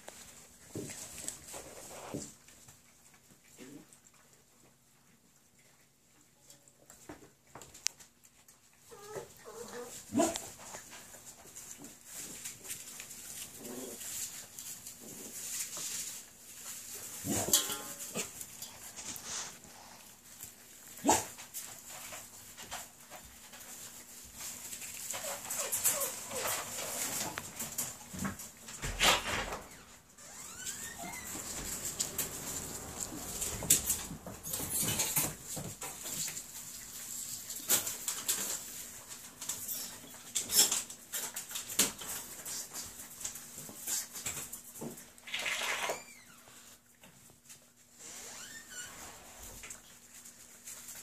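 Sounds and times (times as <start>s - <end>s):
puppies eating from metal pan: 0.0s - 29.0s, 30.2s - 45.8s
rustling in wood shavings: 8.0s - 28.7s, 29.6s - 45.3s, 46.4s - 51.0s
puppy yelping: 8.8s - 10.5s
shuffling in wood shavings: 18.2s - 27.6s, 30.7s - 34.6s.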